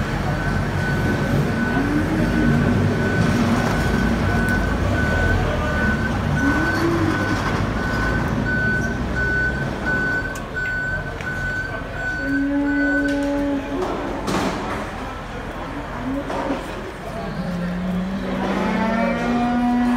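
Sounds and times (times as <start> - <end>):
electronic warning beeps: 0.3 - 13.3.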